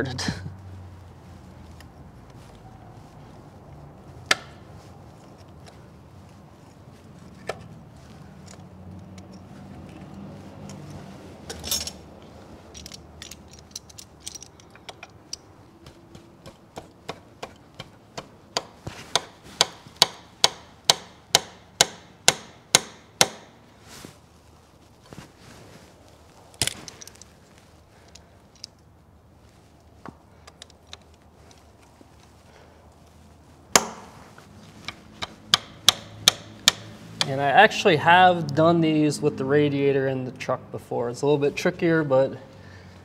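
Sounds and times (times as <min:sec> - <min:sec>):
sharp metal taps: 0:14.8 - 0:23.5, 0:34.9 - 0:37.4.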